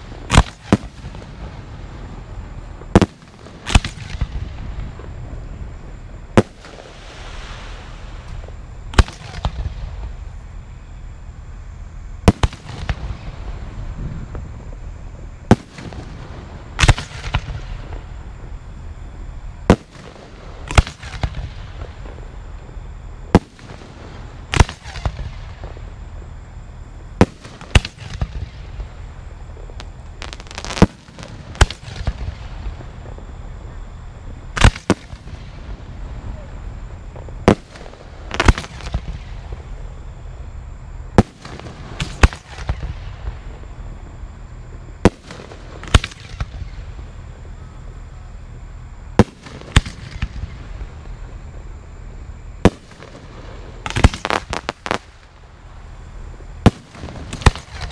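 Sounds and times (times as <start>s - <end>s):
firework shells bursting: 0.0s - 1.4s, 15.4s - 18.1s, 27.2s - 33.2s, 52.6s - 55.4s, 56.6s - 57.9s.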